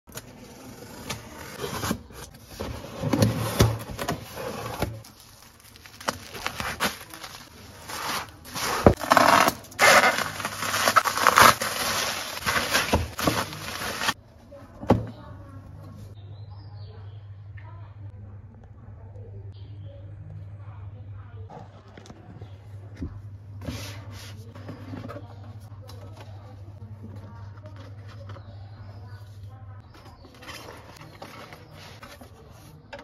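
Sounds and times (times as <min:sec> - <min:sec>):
bubble wrap crinkling: 0:05.0 - 0:14.2
scissors cutting packing tape: 0:06.0 - 0:14.2.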